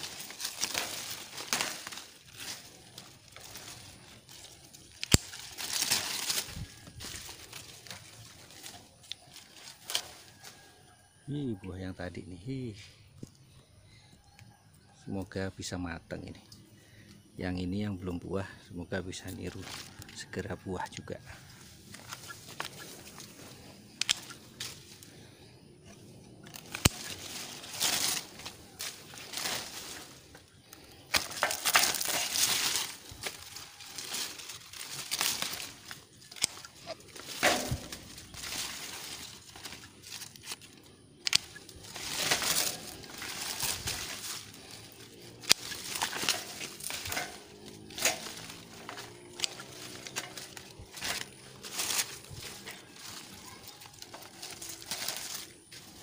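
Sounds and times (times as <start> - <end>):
pruning shears clicking: 0.0 - 10.6, 21.5 - 25.2, 25.8 - 56.0
leaves and canes rustling: 0.0 - 56.0.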